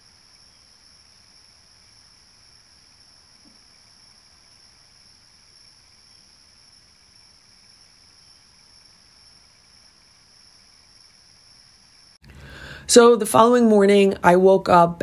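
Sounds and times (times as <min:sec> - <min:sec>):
crickets chirping: 0:00.0 - 0:13.5
low hiss: 0:00.0 - 0:15.0.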